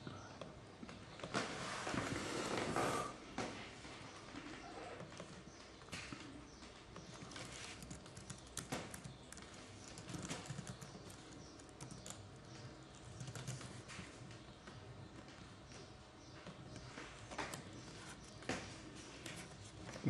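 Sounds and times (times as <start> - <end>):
keyboard typing: 7.0 - 14.2.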